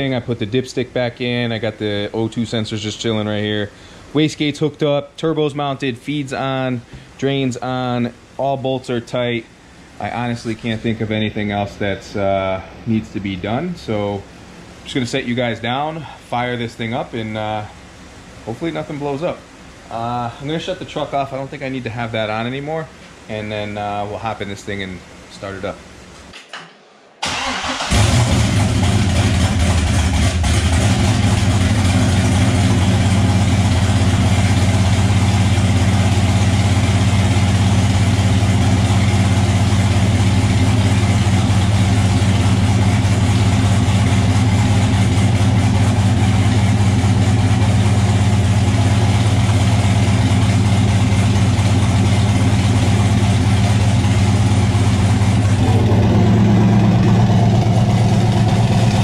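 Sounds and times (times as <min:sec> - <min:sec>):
car engine cranking: 0:27.2 - 0:59.0
car engine idling: 0:27.2 - 0:59.0.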